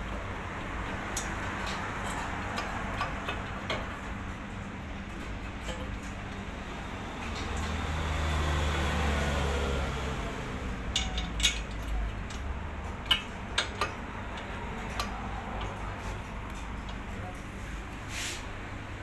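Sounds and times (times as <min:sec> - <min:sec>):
metal clinks and knocks: 0:10.9 - 0:12.4.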